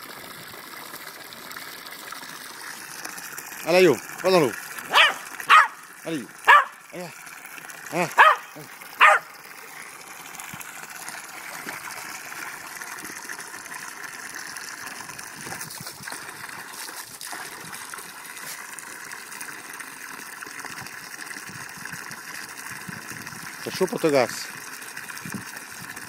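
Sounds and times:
water pouring from hose into pool: 0.0 - 26.0
dog barking: 4.9 - 5.8, 6.4 - 6.8, 8.1 - 9.3.

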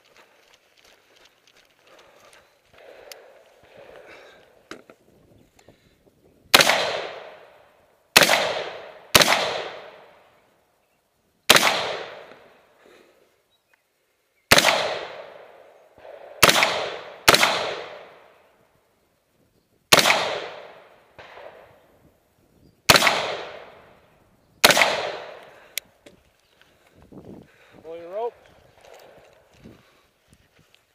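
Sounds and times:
rifle shots: 2.8 - 4.0, 6.5 - 10.2, 11.5 - 12.5, 14.5 - 18.4, 19.9 - 21.8, 22.9 - 23.9, 24.6 - 25.5.

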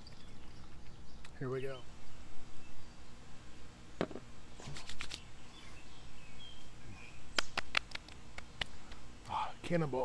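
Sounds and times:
hands patting a face: 7.4 - 9.0
sharp slaps on skin: 7.4 - 9.0.

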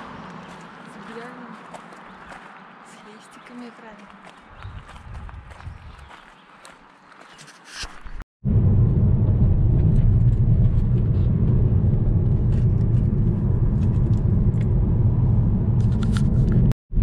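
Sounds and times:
car road and engine rumble: 8.5 - 16.7.

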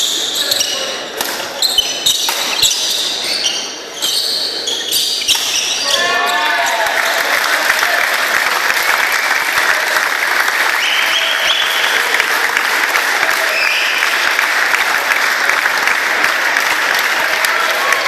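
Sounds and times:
crowd applauding: 6.2 - 18.0.

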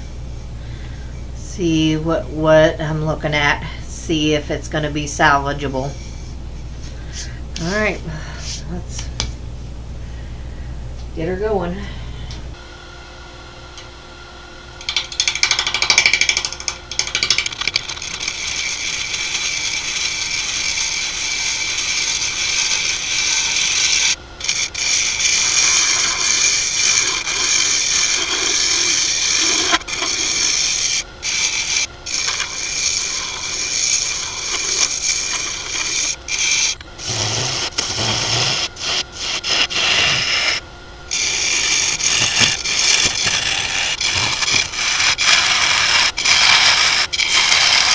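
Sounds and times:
lathe tool scraping wood: 17.1 - 47.9.

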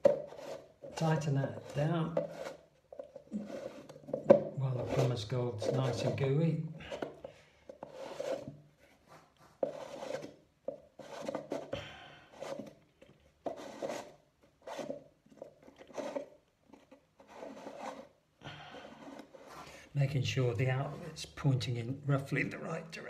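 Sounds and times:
plastic rubbing and scraping: 0.0 - 23.0.

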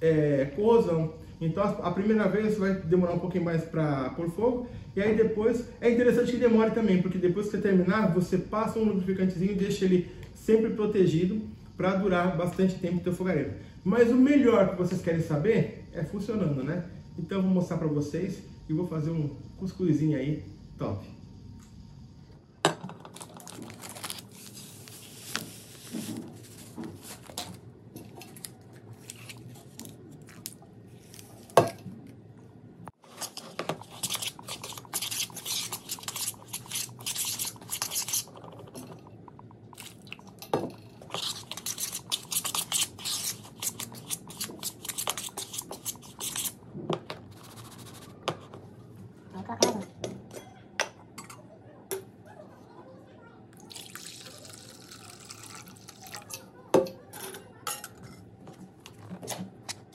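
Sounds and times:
spoon mixing dry meal: 23.1 - 31.9, 33.0 - 46.6.

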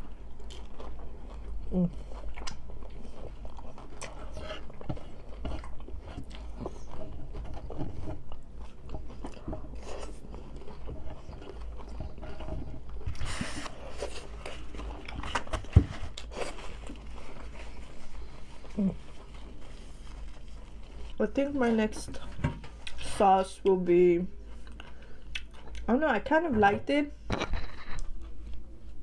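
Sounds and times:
crunchy chewing: 0.0 - 21.2.

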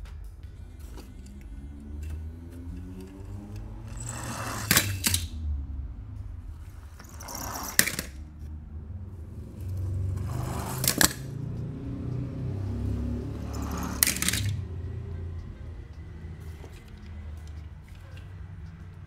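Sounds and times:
low steady hum: 0.0 - 19.0
toy cars rolling scrape: 0.6 - 5.4, 6.5 - 8.3, 9.3 - 11.4, 12.7 - 15.0
toy cars clacking together: 0.7 - 5.4, 6.7 - 8.5, 9.5 - 11.7, 13.2 - 15.1, 15.9 - 19.0.

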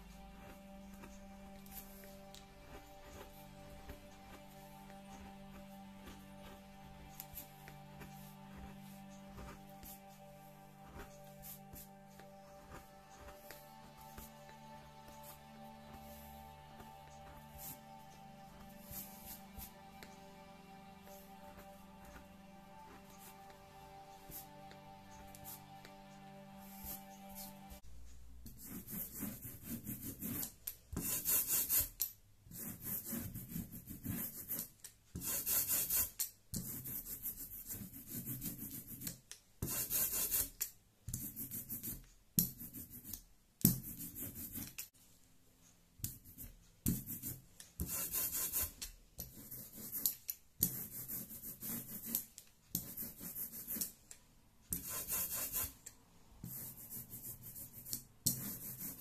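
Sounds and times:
brayer rasping over linoleum: 0.1 - 27.6, 46.0 - 54.0, 54.7 - 59.0.

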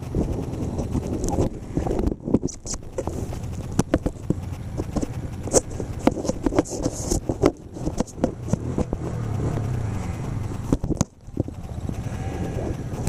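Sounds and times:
quad bike engine idling: 0.0 - 13.0
rustling: 0.7 - 13.0
close knocks and scrapes: 2.3 - 9.0.

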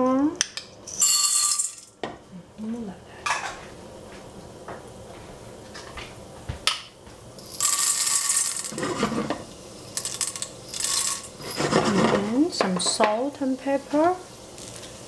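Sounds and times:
kernels rattling into metal saucepan: 0.8 - 2.0, 7.4 - 13.0.

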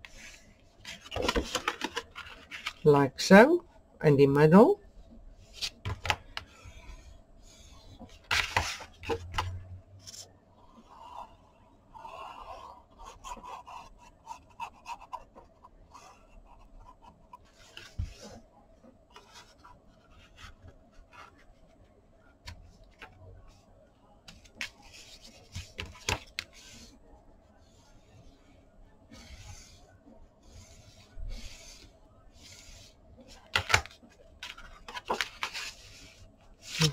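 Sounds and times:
scraping and rubbing of paper: 29.1 - 36.9.

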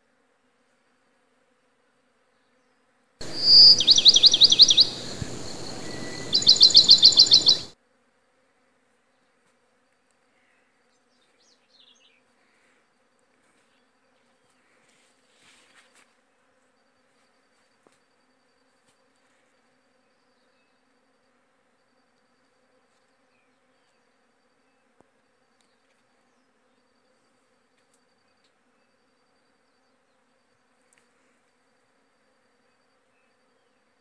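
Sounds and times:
high down-sweeping chirp trills: 3.2 - 7.8.

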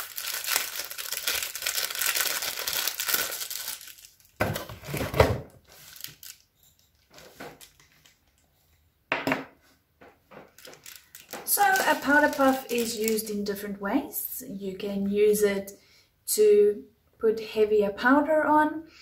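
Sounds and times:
wrapper crinkling and tearing: 0.0 - 8.2, 10.4 - 13.6.

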